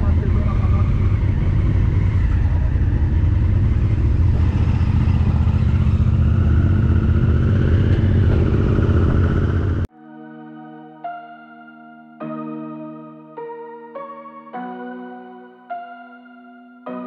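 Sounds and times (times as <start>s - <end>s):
motorcycle engine running: 0.0s - 9.9s
wind rumble on microphone: 0.0s - 9.9s.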